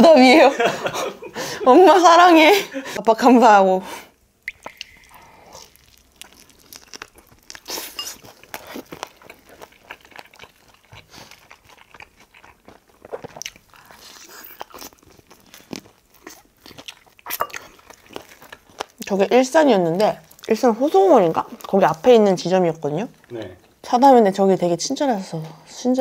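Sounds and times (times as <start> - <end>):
crunchy chewing of fried chicken: 4.6 - 22.0.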